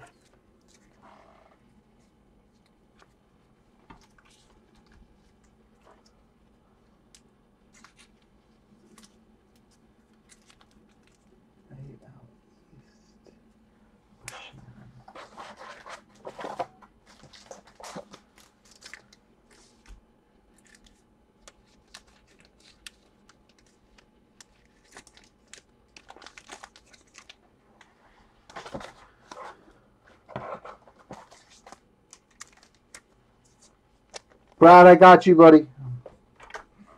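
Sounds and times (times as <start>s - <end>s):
wrappers crinkling and rustling: 15.1s - 34.6s.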